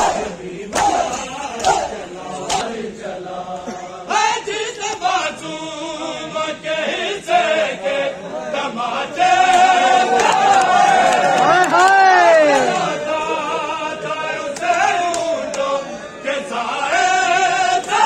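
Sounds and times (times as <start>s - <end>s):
men chanting in unison: 0.0s - 18.0s
hands slapping bare chests: 0.7s - 2.7s, 14.6s - 15.7s.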